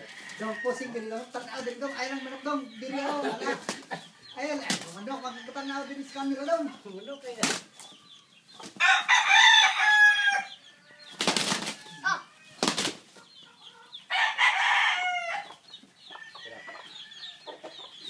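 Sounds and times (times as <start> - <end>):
wings beating: 3.5 - 5.0, 7.3 - 7.8, 11.1 - 12.0, 12.6 - 13.1
rooster crowing: 8.8 - 12.5, 14.1 - 17.5.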